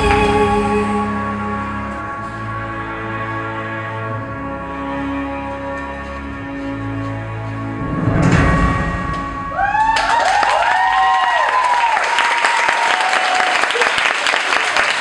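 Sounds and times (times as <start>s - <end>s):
low musical note: 0.0s - 10.5s
audience applause and cheers: 9.2s - 15.0s.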